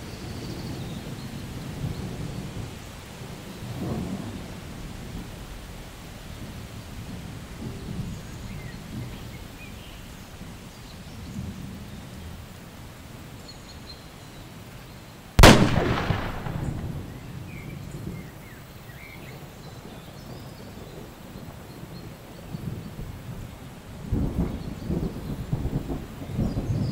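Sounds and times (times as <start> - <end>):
rain hiss: 0.0 - 26.9
low rolling thunder rumble: 0.4 - 12.7, 15.4 - 26.9
sharp loud thunderclap: 15.4 - 17.7.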